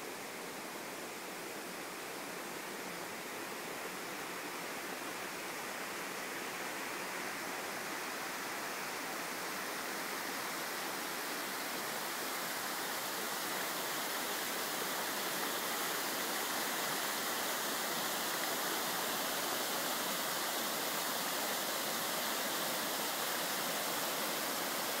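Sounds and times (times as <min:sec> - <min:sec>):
water rushing over rocks: 0:08.3 - 0:25.0.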